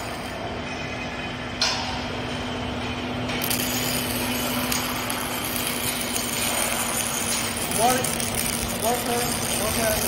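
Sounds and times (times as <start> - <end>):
machine hum: 0.0 - 10.0
workshop din: 1.6 - 10.0.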